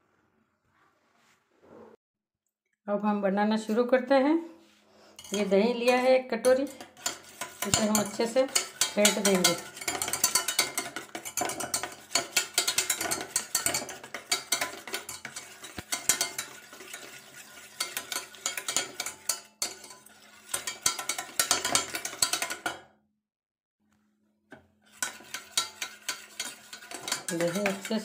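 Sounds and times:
whisk scraping a steel bowl: 5.0 - 22.8, 24.9 - 28.0.

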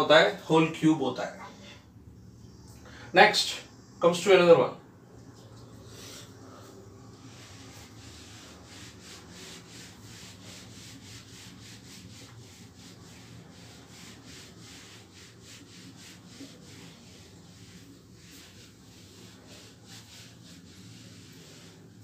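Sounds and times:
duster wiping a whiteboard: 5.3 - 22.0.

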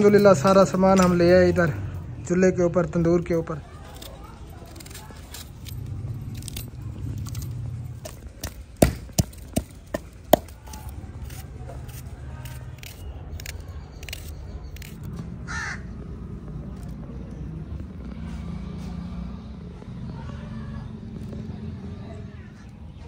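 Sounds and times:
knife cutting vegetables: 10.4 - 15.1.

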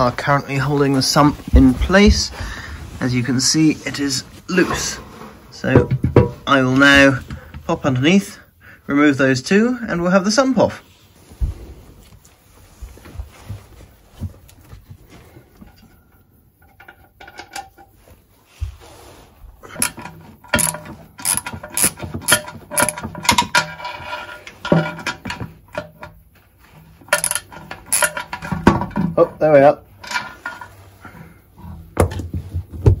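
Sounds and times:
handling noises: 0.0 - 7.9, 11.0 - 33.0
socket ratchet clicking: 20.6 - 23.0.

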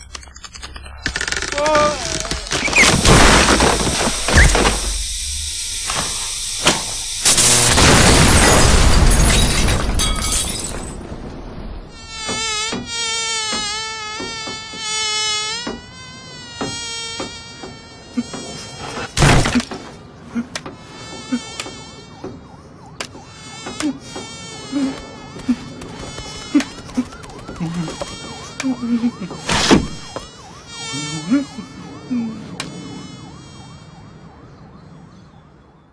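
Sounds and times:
fly buzzing: 1.0 - 8.0, 11.9 - 19.5, 20.7 - 22.2, 23.3 - 34.2.

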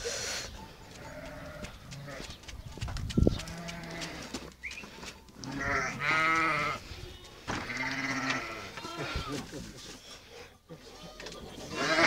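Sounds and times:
sheep bleating: 5.4 - 6.8, 7.6 - 9.4, 11.7 - 12.0.

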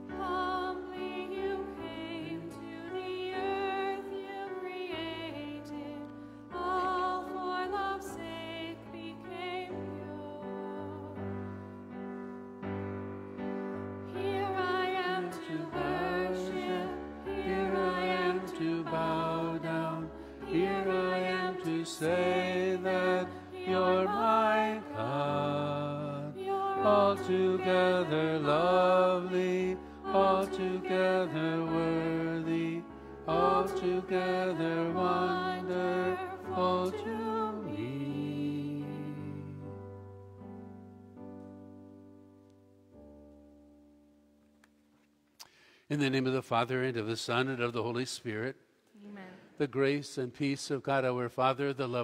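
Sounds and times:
person singing a hymn: 0.0 - 11.9, 13.4 - 40.1.

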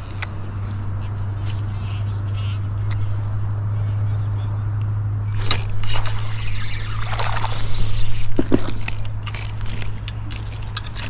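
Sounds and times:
insect trill: 0.0 - 11.0
wind rumble on microphone: 0.0 - 11.0
fishing reel clicking and cranking: 5.4 - 11.0.

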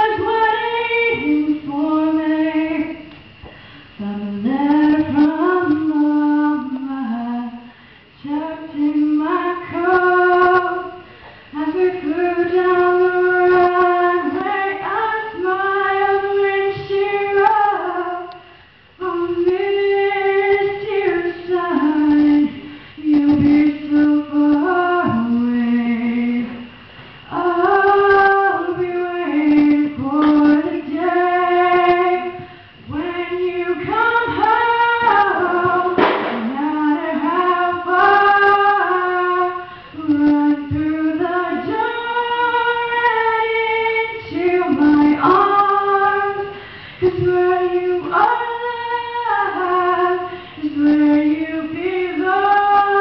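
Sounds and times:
woman singing into microphone: 0.0 - 53.0.

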